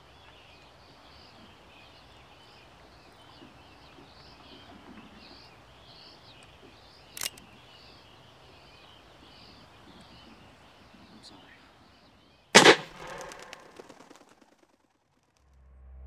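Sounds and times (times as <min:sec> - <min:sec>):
small birds chirping: 0:00.0 - 0:14.3
sharp click: 0:07.2 - 0:07.5.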